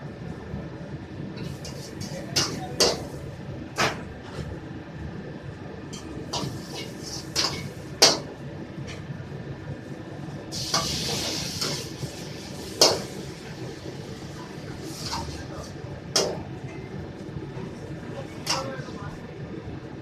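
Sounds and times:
food sizzling in hot wok: 0:06.3 - 0:08.2, 0:10.5 - 0:15.7.

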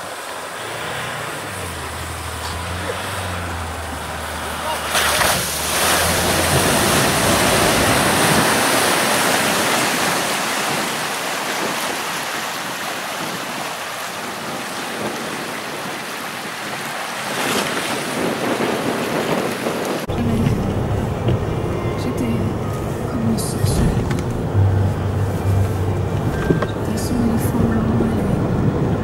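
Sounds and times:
water surging and splashing: 0:00.0 - 0:29.0
low rumble: 0:00.6 - 0:08.4, 0:20.1 - 0:29.0.

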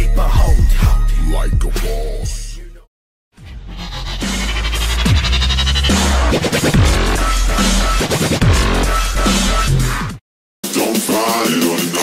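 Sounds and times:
dubstep-like electronic music: 0:03.4 - 0:12.0.

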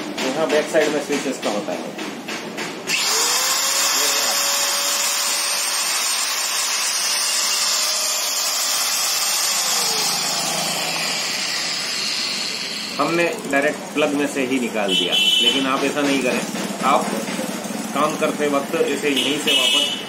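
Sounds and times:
angle grinder whining: 0:02.9 - 0:14.7.

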